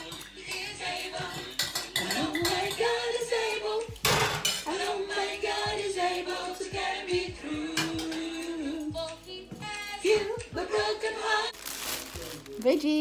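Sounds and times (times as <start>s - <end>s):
dishes and cutlery clinking: 0.0s - 3.1s, 4.0s - 5.0s, 7.7s - 8.6s
music with singing voice: 0.0s - 12.6s.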